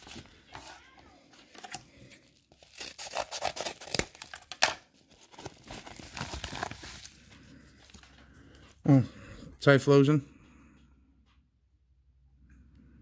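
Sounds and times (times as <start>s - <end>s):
paper envelope ripping: 0.0s - 8.0s.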